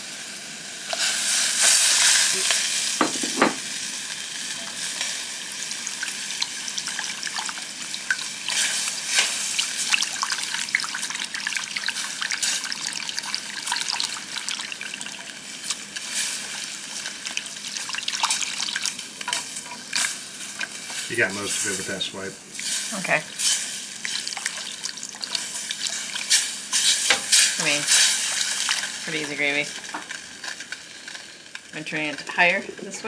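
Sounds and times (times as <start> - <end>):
gravy sizzling in a saucepan: 0.0 - 33.0
liquid poured into hot pan: 5.8 - 20.8.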